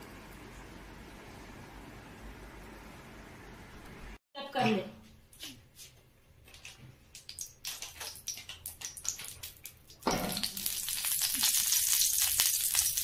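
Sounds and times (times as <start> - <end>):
oil crackling and sizzling in wok: 7.3 - 13.0.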